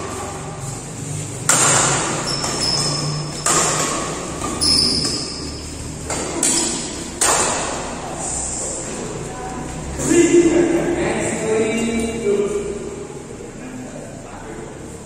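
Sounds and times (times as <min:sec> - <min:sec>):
racket hitting shuttlecock: 0:01.4 - 0:08.0
shoes squeaking on court floor: 0:02.0 - 0:06.1.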